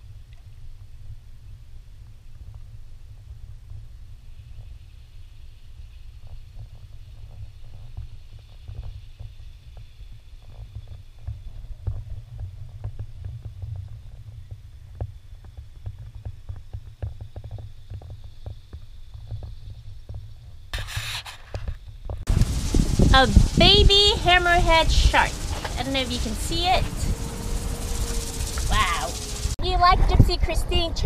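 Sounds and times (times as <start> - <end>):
wind buffeting microphone: 22.1 - 31.0.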